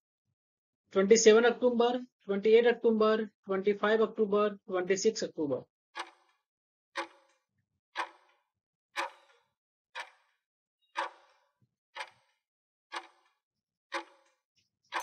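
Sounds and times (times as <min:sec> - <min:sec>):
sharp clock-like ticks: 0:06.0 - 0:07.4, 0:08.0 - 0:08.4, 0:09.0 - 0:10.4, 0:11.0 - 0:11.4, 0:12.0 - 0:15.0.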